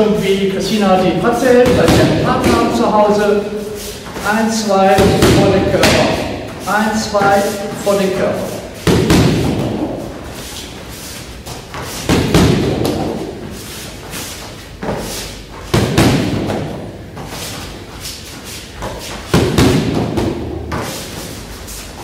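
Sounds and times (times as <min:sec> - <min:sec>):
gloves smacking kick pads: 0:01.6 - 0:02.7, 0:04.9 - 0:06.6, 0:08.8 - 0:10.0, 0:11.5 - 0:13.3, 0:15.7 - 0:16.8, 0:19.3 - 0:20.8
heavy thuds on pads: 0:01.6 - 0:02.9, 0:04.9 - 0:06.6, 0:07.2 - 0:10.2, 0:11.4 - 0:13.4, 0:15.7 - 0:17.3, 0:18.8 - 0:20.9.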